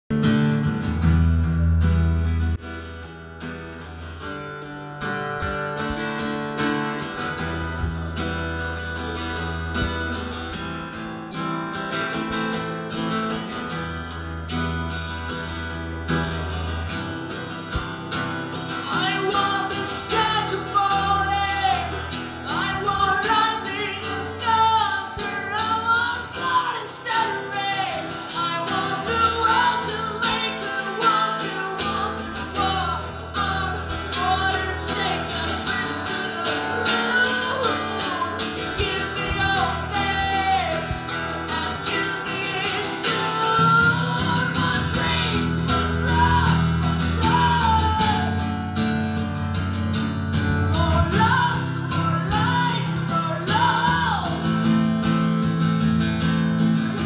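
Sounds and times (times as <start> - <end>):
acoustic guitar chords: 0.1 - 57.0
man singing in high voice: 18.6 - 49.0, 50.6 - 54.7.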